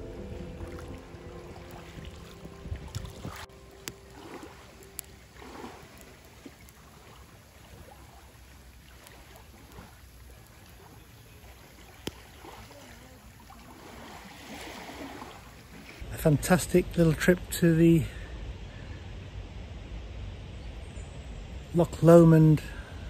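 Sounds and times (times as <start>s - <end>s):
campfire popping: 0.0s - 14.7s
small waves lapping against rocks: 0.4s - 16.1s.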